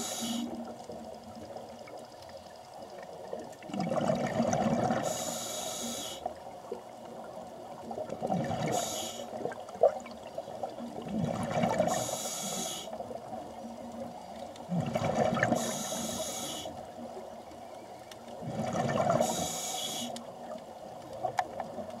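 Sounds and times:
regulator hiss on inhale: 0.0 - 0.7, 5.0 - 6.4, 8.7 - 9.4, 11.9 - 13.0, 15.5 - 16.9, 19.2 - 20.3
bubbling exhaled air: 3.7 - 5.3, 11.0 - 12.9, 14.7 - 16.6, 18.4 - 20.1.

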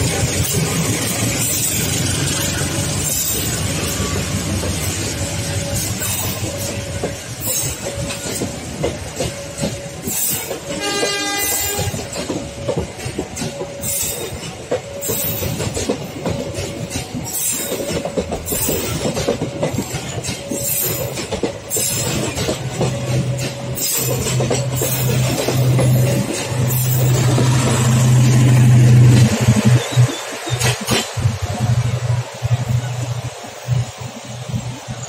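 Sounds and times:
train wheels clacking: 0.0 - 35.0
train horn: 10.6 - 12.2.

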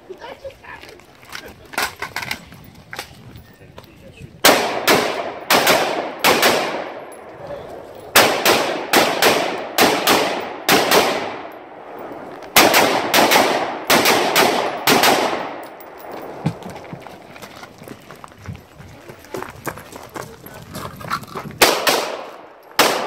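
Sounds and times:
rifle shots echoing: 4.4 - 7.3, 8.1 - 16.4, 21.6 - 23.0.

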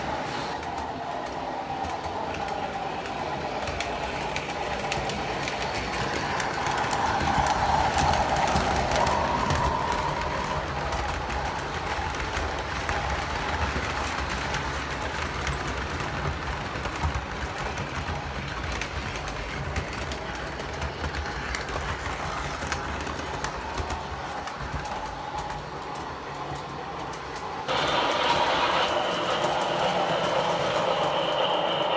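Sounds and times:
metal wheels rumbling on rails: 3.2 - 31.9
locomotive motor whine: 27.7 - 31.9.

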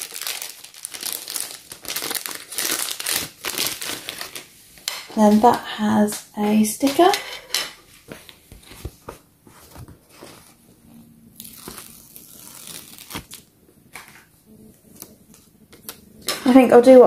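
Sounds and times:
paper sheet rustling: 7.9 - 16.6.

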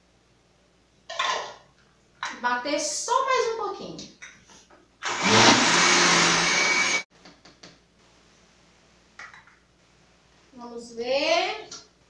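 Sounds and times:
blender motor running: 5.0 - 7.0.

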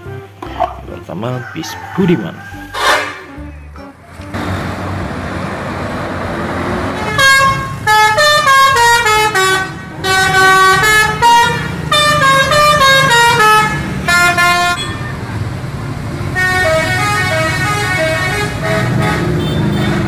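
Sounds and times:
musical multi-tone bus horn: 0.0 - 0.4, 2.6 - 5.2, 6.5 - 15.4, 16.3 - 20.0
traffic noise: 0.0 - 20.0
bus engine: 2.7 - 20.0.

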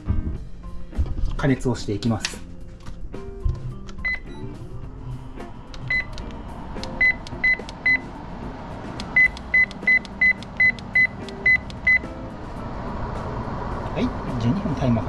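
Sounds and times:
steady rushing noise: 5.2 - 10.0, 12.2 - 15.0.

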